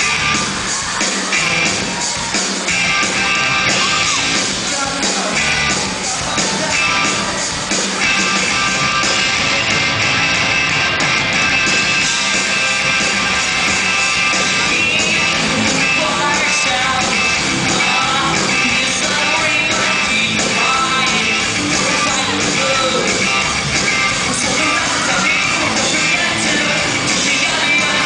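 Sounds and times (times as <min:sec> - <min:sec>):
live rock band playing: 0:00.0 - 0:28.0
man singing: 0:14.4 - 0:28.0.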